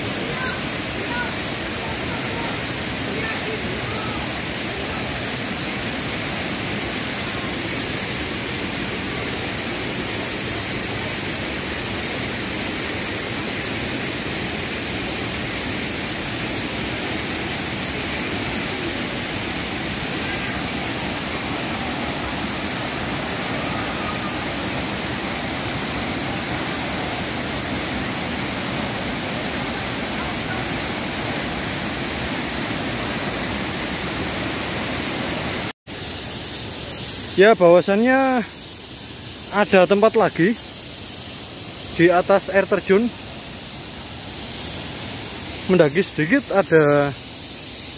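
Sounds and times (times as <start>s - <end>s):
waterfall rushing over rocks: 0.0s - 47.9s.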